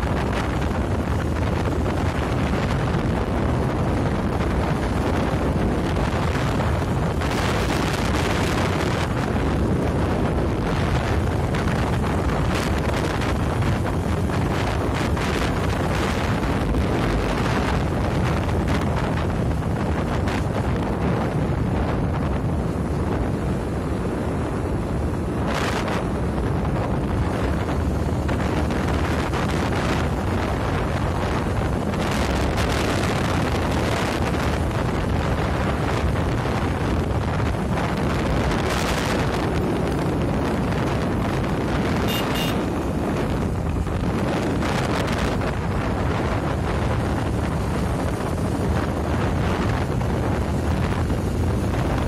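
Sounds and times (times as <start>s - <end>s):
vehicle rumble: 0.0s - 52.0s
wind buffeting microphone: 0.0s - 52.0s.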